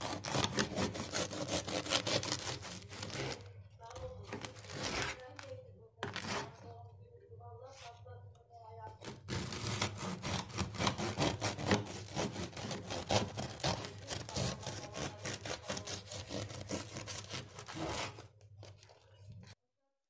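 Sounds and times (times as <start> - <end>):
knife sawing through bread: 0.0 - 3.5, 4.3 - 5.2, 9.0 - 18.3.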